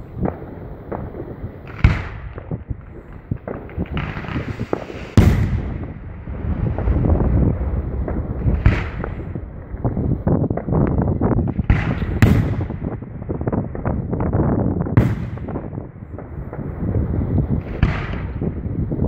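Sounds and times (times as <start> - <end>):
firework bangs: 0.0 - 19.0
firework crackling: 0.0 - 19.0
low rumble of echoes: 5.2 - 19.0.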